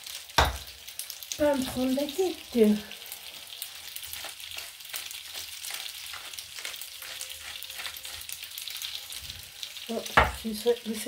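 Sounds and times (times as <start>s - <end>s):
pasta sizzling in a frying pan: 0.0s - 11.0s.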